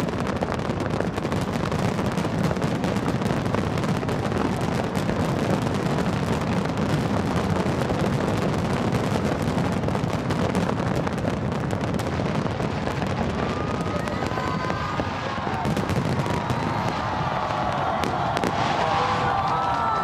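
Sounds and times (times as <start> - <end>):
fireworks crackling: 0.0 - 20.0
fireworks rumbling bangs: 0.0 - 20.0.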